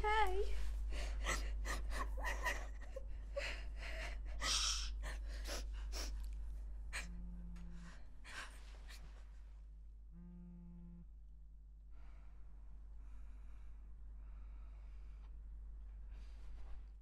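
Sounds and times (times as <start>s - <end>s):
girl crying: 0.0s - 6.1s
phone vibrating buzz: 7.0s - 8.2s, 10.1s - 11.2s.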